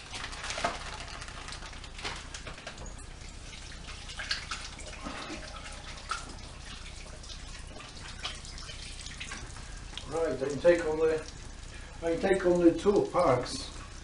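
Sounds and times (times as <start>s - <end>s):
light crackles: 0.0s - 3.4s.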